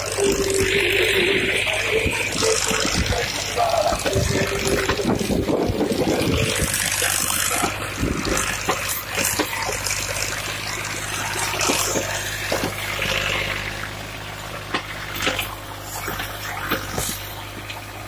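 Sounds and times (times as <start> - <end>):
tractor diesel engine running: 0.0 - 18.0
cultivator hiss and clicks: 14.7 - 17.8.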